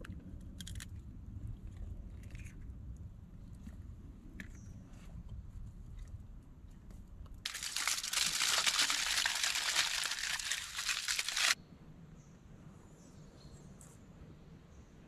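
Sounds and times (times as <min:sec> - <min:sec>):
aluminium foil crinkling: 0:07.5 - 0:11.6.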